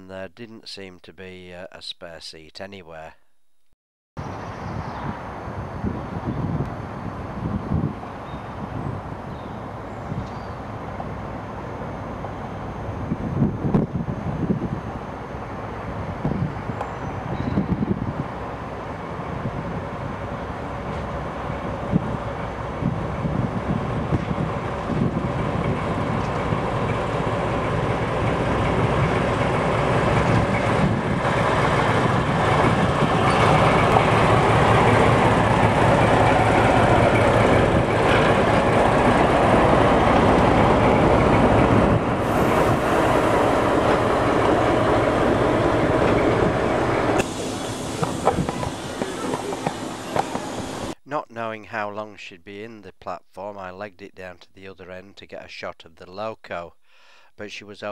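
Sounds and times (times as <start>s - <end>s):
diesel locomotive engine passing: 4.2s - 51.0s
train coaches rolling past: 14.8s - 51.0s.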